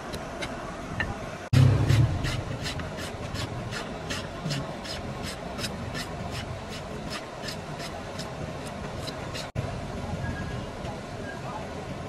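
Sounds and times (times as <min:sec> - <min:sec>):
rasp on wooden handle: 0:01.6 - 0:09.5.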